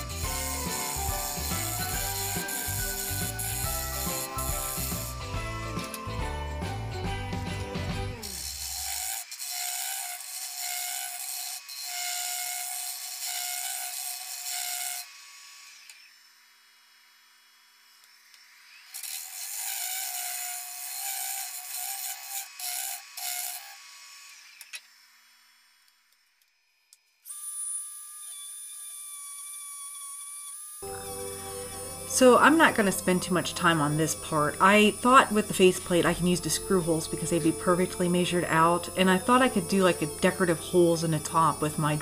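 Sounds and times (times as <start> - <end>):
lathe tool scraping wood: 0.0 - 15.2, 18.8 - 24.4, 28.2 - 42.0.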